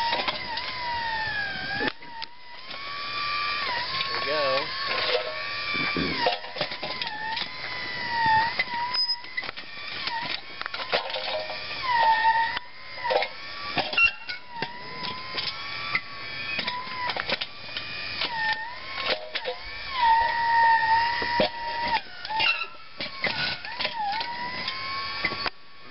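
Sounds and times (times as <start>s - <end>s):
electric hydraulic pump whining: 0.0s - 25.9s.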